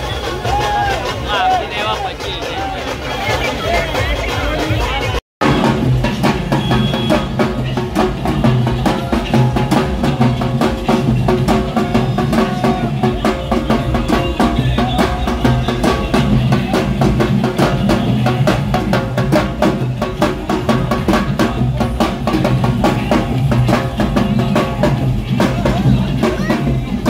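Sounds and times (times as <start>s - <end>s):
barrel drums beating fast: 0.0s - 27.0s
tune over drums: 0.0s - 27.0s.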